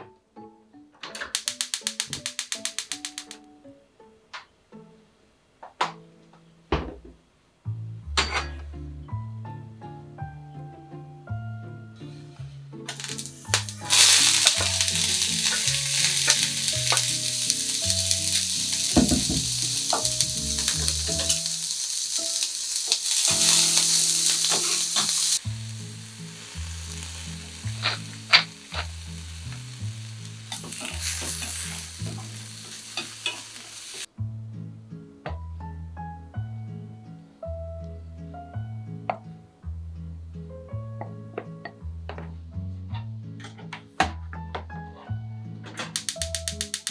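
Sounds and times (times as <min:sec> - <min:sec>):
soft background music: 0:00.0 - 0:06.7, 0:07.6 - 0:46.9
sharp clicks: 0:01.1 - 0:03.5, 0:45.9 - 0:46.9
vegetables sizzling in oil: 0:01.4 - 0:03.4, 0:12.9 - 0:34.1.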